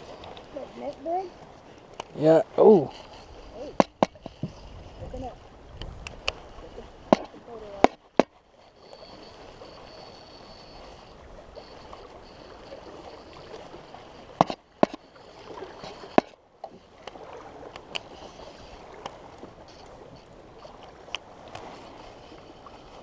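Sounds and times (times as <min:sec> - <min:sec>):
fishing rod and reel knocks: 0:00.0 - 0:01.1, 0:02.8 - 0:04.6, 0:07.0 - 0:18.3
water lapping and sloshing: 0:00.0 - 0:23.0.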